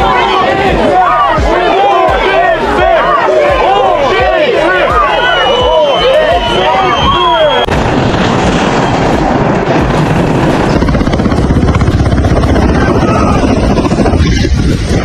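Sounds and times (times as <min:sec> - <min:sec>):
helicopter rotor and engine noise: 0:07.8 - 0:15.0.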